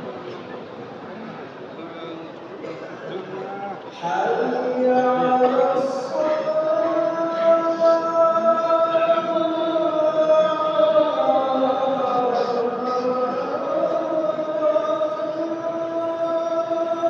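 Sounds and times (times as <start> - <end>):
man chanting: 4.0 - 17.0.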